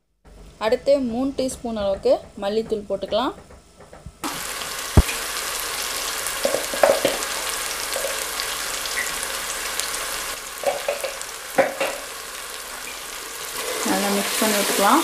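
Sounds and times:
food sizzling in a pot: 4.2 - 15.0.

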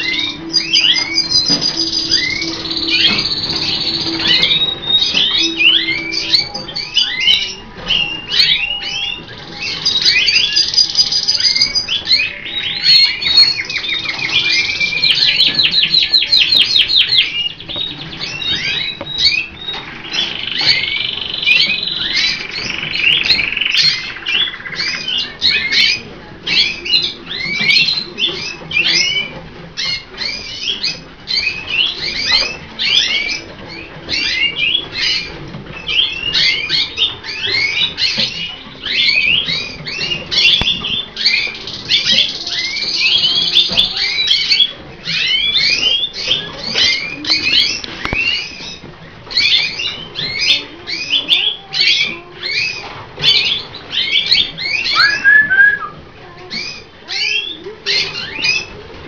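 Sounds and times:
canaries singing and chirping: 0.0 - 59.0.

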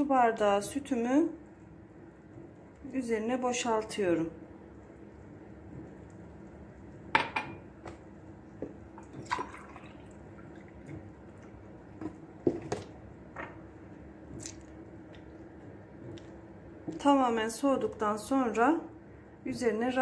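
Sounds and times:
milk dripping and splashing: 7.9 - 13.2, 14.2 - 17.0.

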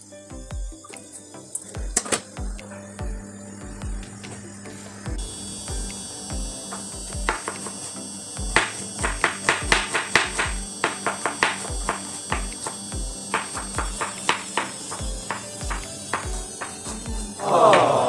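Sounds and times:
background music with steady beat: 0.0 - 18.0
knife chopping on cutting board: 8.6 - 18.0.

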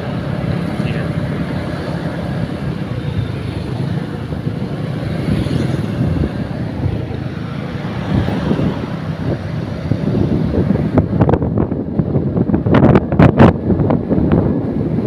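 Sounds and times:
motorcycle engine: 0.0 - 15.0
road noise: 0.0 - 15.0
wind rushing over microphone: 0.0 - 15.0.

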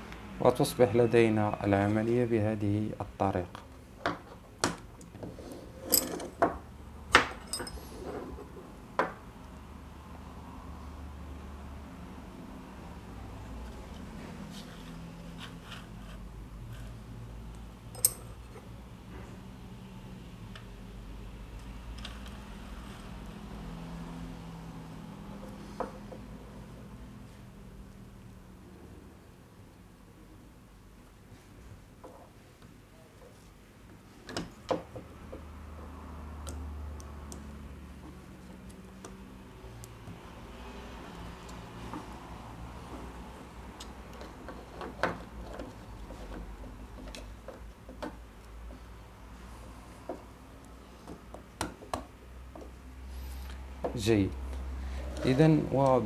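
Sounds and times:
low steady hum: 16.8 - 19.4.

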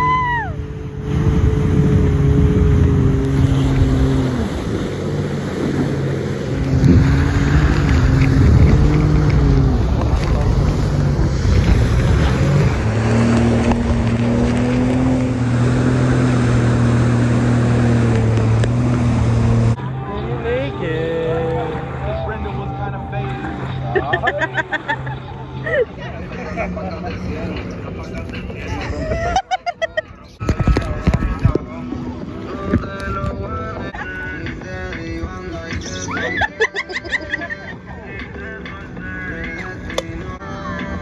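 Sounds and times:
water rushing: 0.0 - 29.5
jet ski engine running: 0.0 - 41.0
wind on microphone: 0.5 - 19.8, 30.4 - 33.8.

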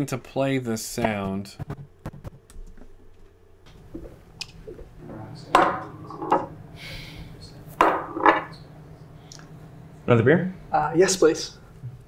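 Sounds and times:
low room hum: 0.0 - 12.0
dishes and glasses clinking: 5.3 - 6.6, 7.8 - 8.6.

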